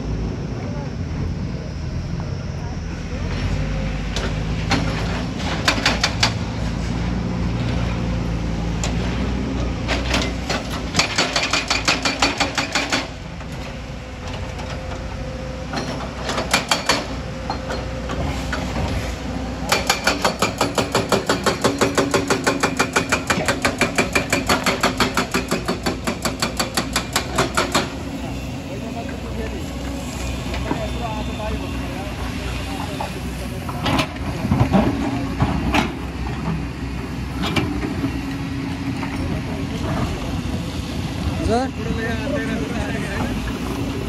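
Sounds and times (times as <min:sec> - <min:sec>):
diesel engine drone: 0:00.0 - 0:44.0
hydraulic breaker hammering rock: 0:04.7 - 0:06.5, 0:09.8 - 0:13.2, 0:15.7 - 0:19.0, 0:19.6 - 0:28.0.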